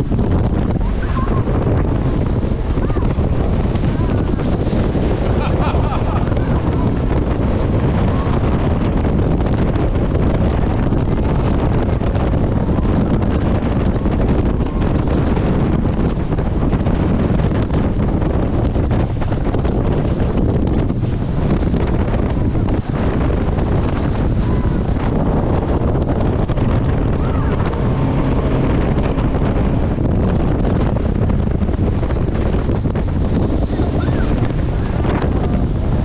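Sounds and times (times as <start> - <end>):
boat engine and water jet rumble: 0.0 - 36.0
wind buffeting microphone: 0.0 - 36.0.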